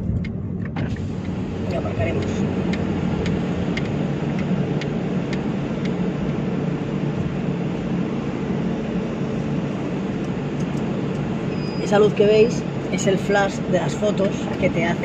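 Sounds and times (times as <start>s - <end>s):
regular sharp clicks: 0.0s - 6.0s
car engine idling: 0.0s - 15.0s.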